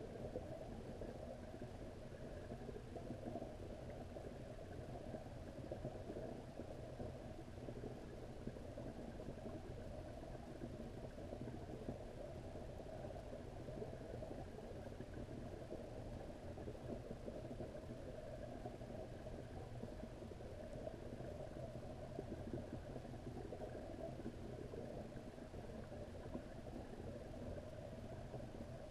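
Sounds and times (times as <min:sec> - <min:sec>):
muffled underwater rumble and crackle: 0:00.0 - 0:28.9.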